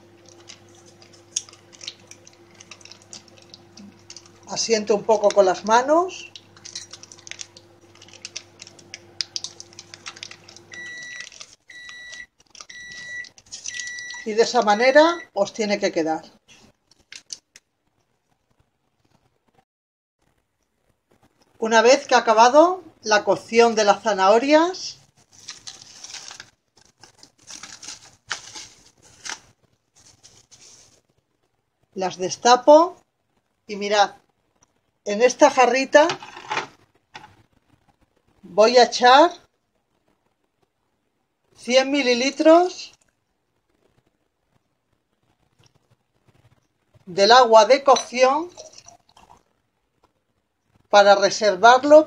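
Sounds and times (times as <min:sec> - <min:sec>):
cling film crinkling: 0:00.0 - 0:14.8, 0:16.5 - 0:19.3, 0:25.0 - 0:31.6
microwave beeping: 0:00.0 - 0:15.4
microwave oven humming: 0:00.0 - 0:15.5
biscuits crackling: 0:00.0 - 0:15.6, 0:16.4 - 0:19.4, 0:23.4 - 0:32.7, 0:41.4 - 0:51.0.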